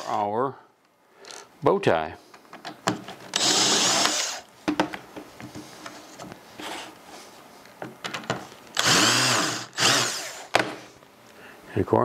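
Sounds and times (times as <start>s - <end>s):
cordless drill running: 3.3s - 4.5s, 8.8s - 10.5s.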